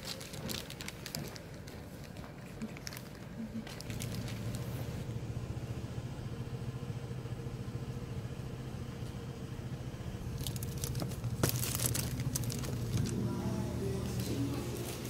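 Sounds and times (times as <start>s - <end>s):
plastic bag rustling: 0.0s - 5.0s, 10.4s - 15.0s
low rumble: 9.8s - 14.7s.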